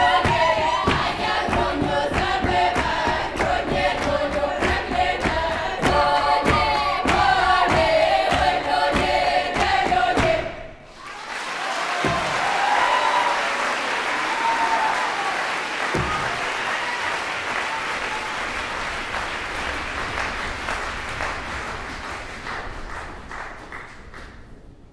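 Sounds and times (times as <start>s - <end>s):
audience applauding: 10.9s - 24.6s.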